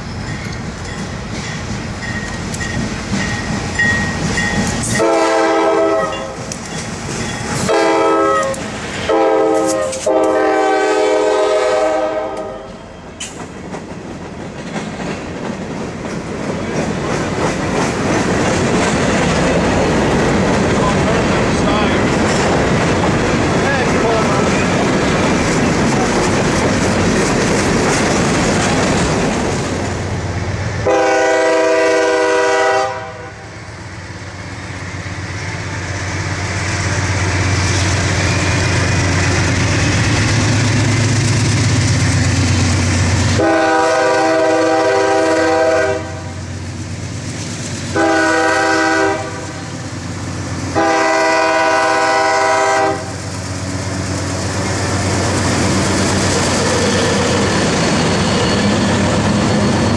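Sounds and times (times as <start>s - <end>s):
train wheels clattering: 0.0s - 10.4s, 12.4s - 32.7s, 46.5s - 59.9s
locomotive air horn: 5.0s - 6.4s, 7.6s - 12.8s, 30.8s - 33.5s, 43.4s - 46.4s, 47.9s - 49.6s, 50.7s - 53.2s.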